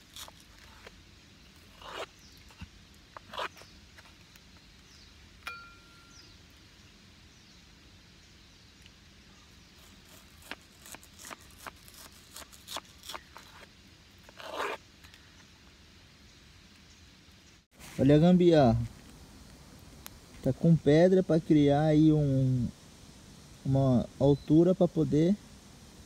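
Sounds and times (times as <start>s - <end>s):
scraping crunches of stones: 0.0s - 4.8s, 10.1s - 15.3s
ringing metal clink: 5.4s - 6.2s.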